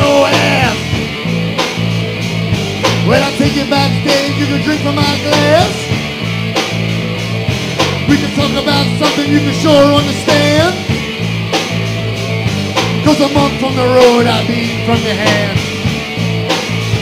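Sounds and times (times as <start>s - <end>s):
driving drum beat: 0.0s - 17.0s
rhythm guitar low notes: 0.0s - 17.0s.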